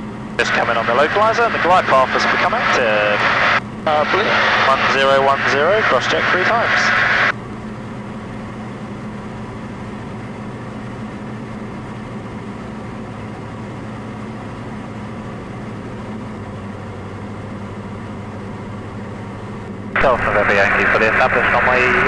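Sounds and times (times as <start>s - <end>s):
aircraft engine and propeller droning: 0.0s - 22.0s.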